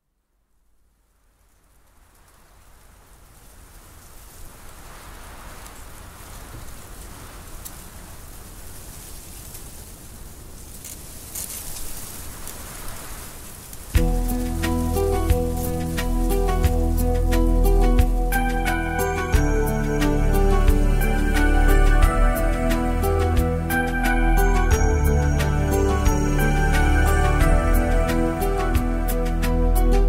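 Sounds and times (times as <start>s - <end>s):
faint crackles: 0.0s - 30.0s
steady rushing like rain: 0.0s - 30.0s
instrumental music: 14.0s - 30.0s.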